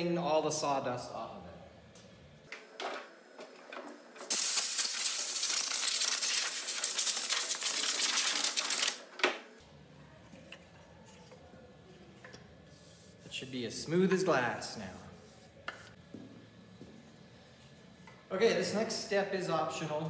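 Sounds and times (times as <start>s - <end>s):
compressed air blow gun hissing: 4.3s - 9.0s.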